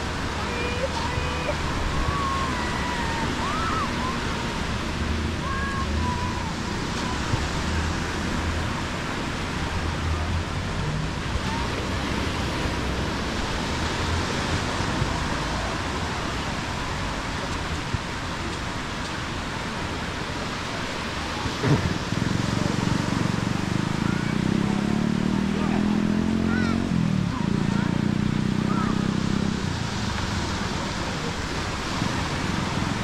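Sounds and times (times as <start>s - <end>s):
small waves washing onto sand: 0.0s - 33.0s
wind: 0.0s - 33.0s.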